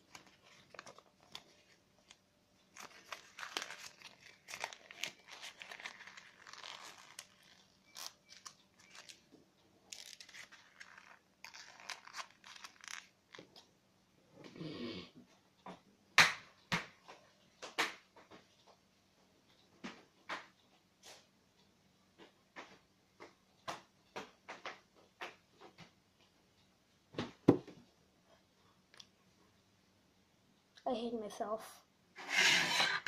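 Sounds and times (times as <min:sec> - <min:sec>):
paper rustling and crinkling: 0:00.0 - 0:09.3, 0:09.9 - 0:13.4.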